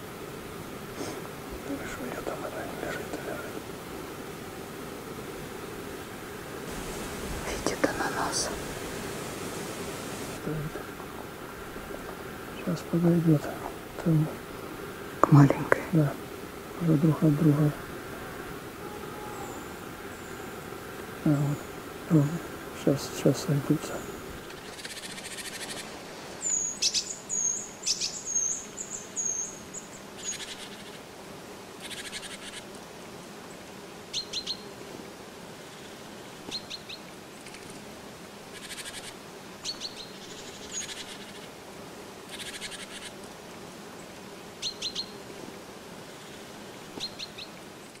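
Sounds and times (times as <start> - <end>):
birds ticking: 6.6 - 30.8
buzzy bird trills: 23.8 - 31.0, 38.5 - 41.5, 42.3 - 43.2.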